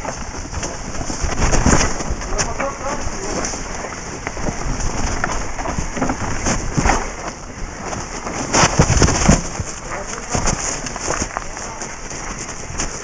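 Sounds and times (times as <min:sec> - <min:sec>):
bike knocking and rattling: 0:00.0 - 0:13.0
tyres rushing over dirt: 0:00.0 - 0:13.0.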